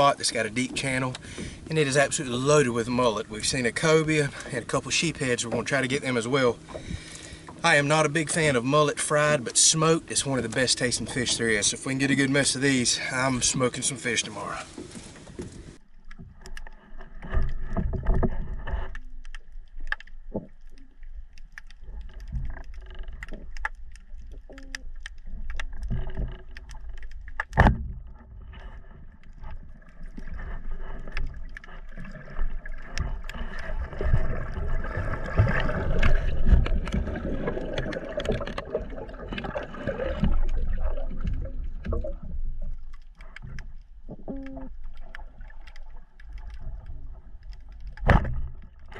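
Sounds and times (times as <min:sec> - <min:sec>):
faint steady hum: 0:00.0 - 0:48.9
underwater rumbling: 0:00.0 - 0:48.9
bubbling: 0:15.6 - 0:48.9.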